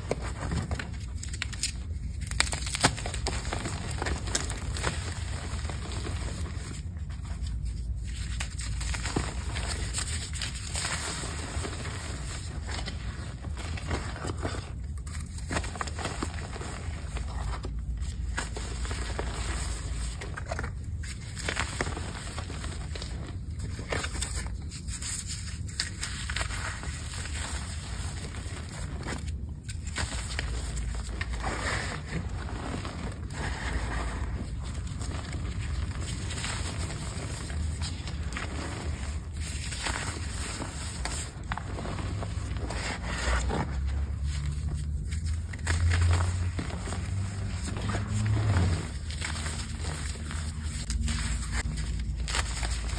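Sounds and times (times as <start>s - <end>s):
hands crumbling chalk: 0.0s - 52.9s
low steady rumble: 0.0s - 52.9s.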